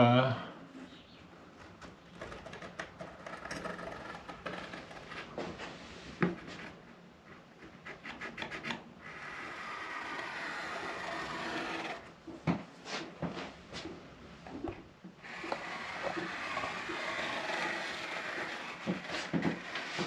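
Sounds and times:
compass scraping on wood: 2.1s - 12.3s, 14.6s - 20.0s.

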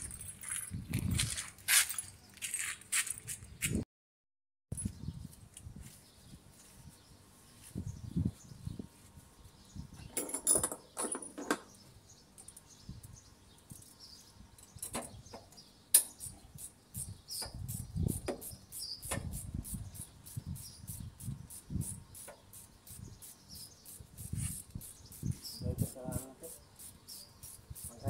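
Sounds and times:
faint bird chirps: 11.7s - 28.0s.

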